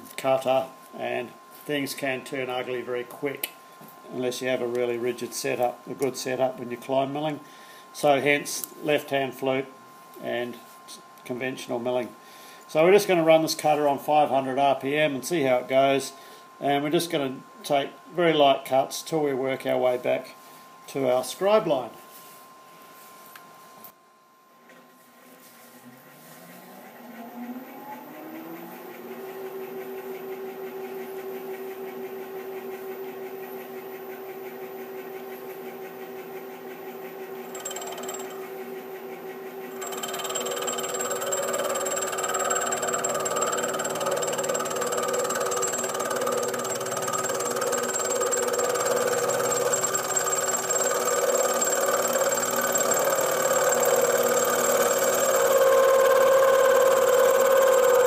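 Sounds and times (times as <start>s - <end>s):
milling machine spindle whine: 30.8s - 58.0s
end mill cutting metal: 39.8s - 58.0s.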